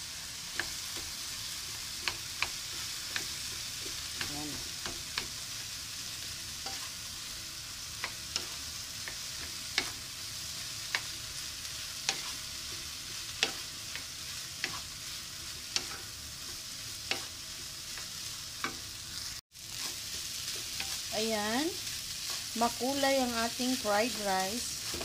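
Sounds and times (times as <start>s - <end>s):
rice sizzling in a pan: 0.0s - 25.0s
spatula tapping and scraping a pan: 0.5s - 5.6s, 6.6s - 7.0s, 7.8s - 10.1s, 10.8s - 11.2s, 11.9s - 18.9s, 19.8s - 21.1s, 24.8s - 25.0s.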